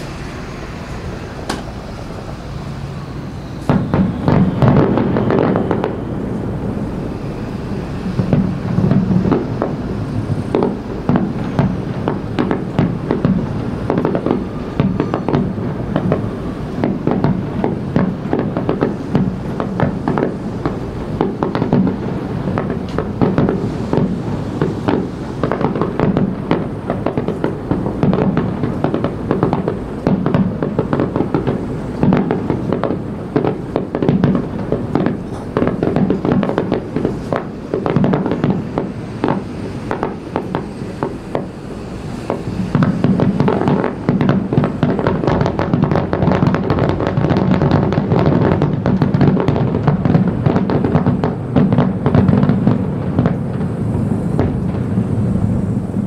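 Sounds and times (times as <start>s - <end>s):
fireworks bursting with crackling: 0.0s - 56.0s.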